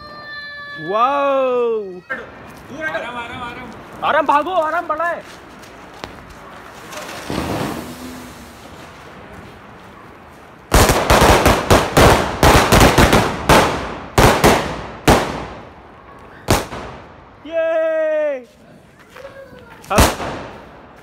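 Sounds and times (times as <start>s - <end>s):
firecrackers banging: 5.4s - 17.4s, 19.6s - 21.0s.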